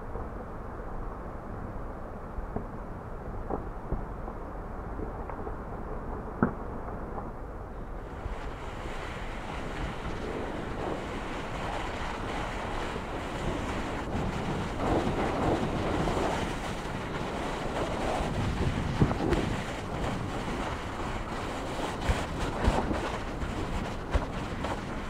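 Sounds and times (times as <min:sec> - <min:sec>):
wind rushing over microphone: 0:00.0 - 0:25.0.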